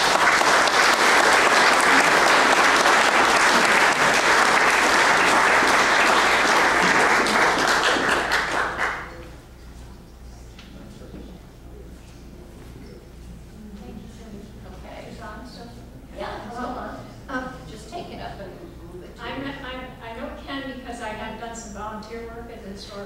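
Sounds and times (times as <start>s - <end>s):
audience applauding: 0.0s - 9.4s
faint room noise: 0.0s - 23.0s.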